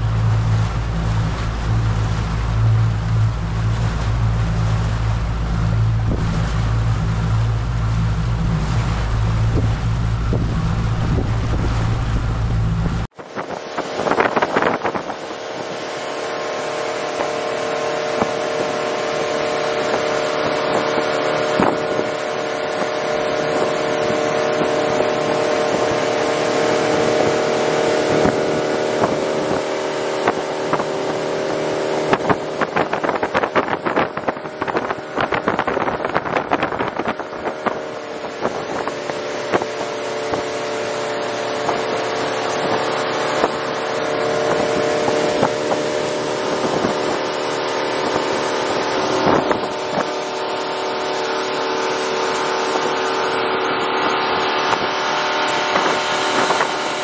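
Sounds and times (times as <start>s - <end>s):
boat motor running: 0.0s - 57.0s.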